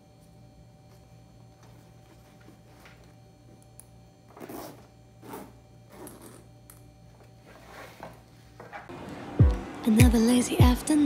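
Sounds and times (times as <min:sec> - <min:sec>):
metal zipper closing: 0:04.4 - 0:06.4.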